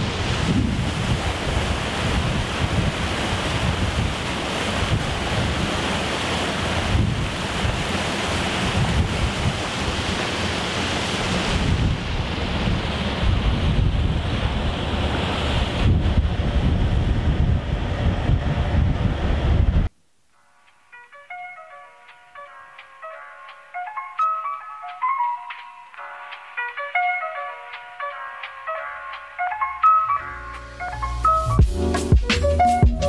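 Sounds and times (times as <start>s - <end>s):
boat wake rushing: 0.0s - 19.9s
wind buffeting microphone: 0.0s - 19.9s.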